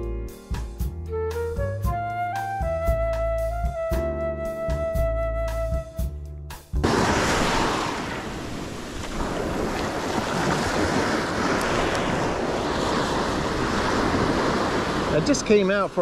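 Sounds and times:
small surf washing up beach: 6.8s - 16.0s
wind buffeting microphone: 6.8s - 16.0s.

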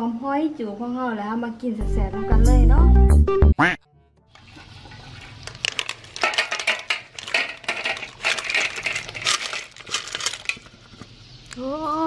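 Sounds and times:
utensil clinking in pot: 5.5s - 10.6s.

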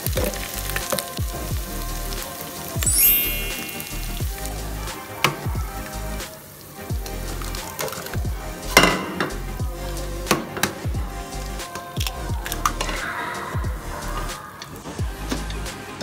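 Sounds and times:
paste sizzling in hot oil: 0.0s - 9.6s
background music: 0.0s - 16.0s.

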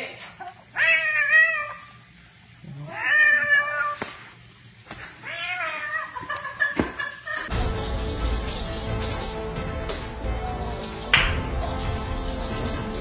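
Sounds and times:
cat meowing: 2.8s - 4.0s, 5.2s - 6.2s.

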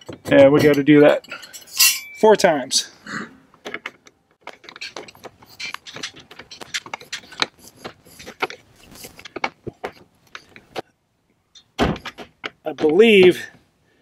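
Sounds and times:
screwdriver clicking and scraping: 4.5s - 9.6s.

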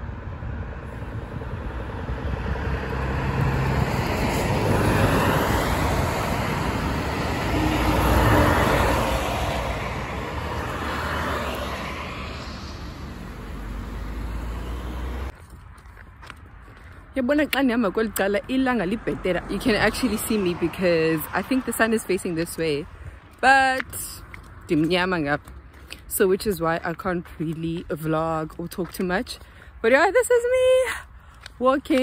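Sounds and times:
cars passing on road: 0.0s - 32.0s.

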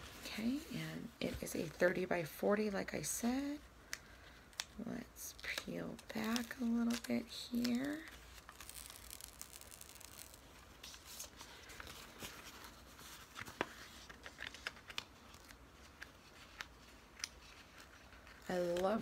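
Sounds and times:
plastic film crinkling: 4.4s - 19.0s.

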